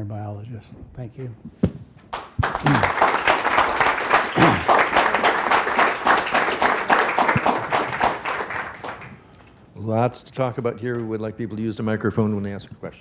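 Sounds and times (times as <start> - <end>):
audience applauding: 2.1 - 9.3.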